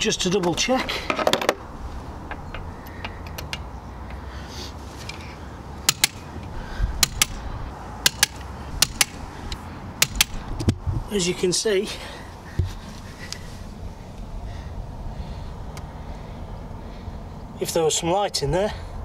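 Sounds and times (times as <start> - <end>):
socket wrench clicking: 2.3 - 3.7, 5.9 - 6.3, 8.0 - 9.2.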